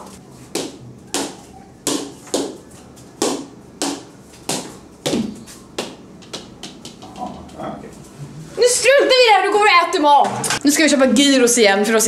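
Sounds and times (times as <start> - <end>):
ball hit with plastic paddles: 0.6 - 2.6, 3.2 - 7.3.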